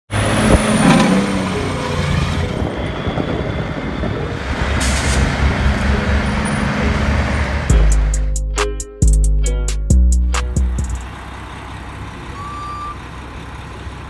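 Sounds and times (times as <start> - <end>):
diesel truck engine running: 0.1 - 14.0.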